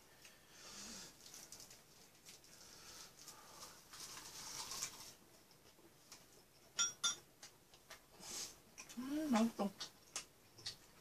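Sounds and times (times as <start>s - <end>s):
quiet chewing: 7.4s - 11.0s.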